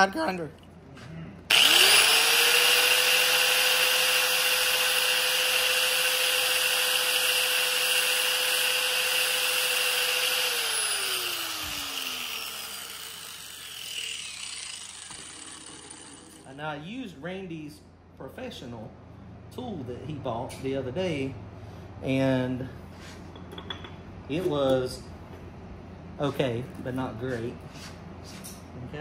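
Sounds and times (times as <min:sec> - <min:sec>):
grinder motor whine: 0:01.5 - 0:16.5
grinder scraping metal: 0:01.5 - 0:16.5.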